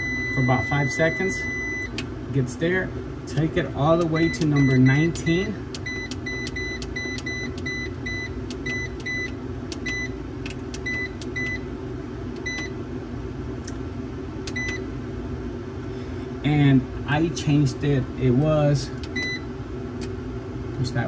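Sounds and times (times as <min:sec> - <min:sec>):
steady low hum: 0:00.0 - 0:21.0
short high keypad beeps: 0:05.8 - 0:10.1, 0:12.4 - 0:12.7, 0:14.5 - 0:14.8.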